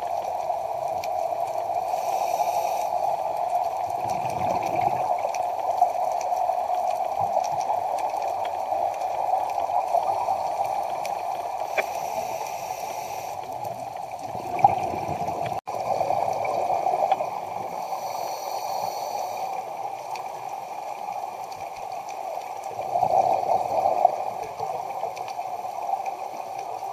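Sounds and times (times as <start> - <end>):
muffled underwater rush of water: 0.0 - 26.9
scuba regulator hiss: 1.8 - 3.3, 11.6 - 13.5, 17.6 - 19.6.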